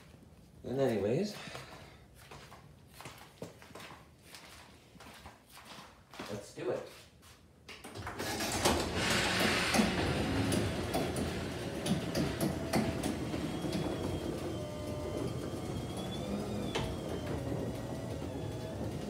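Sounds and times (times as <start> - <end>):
garage door clacking: 7.9 - 19.0
garage door opener motor: 8.0 - 19.0.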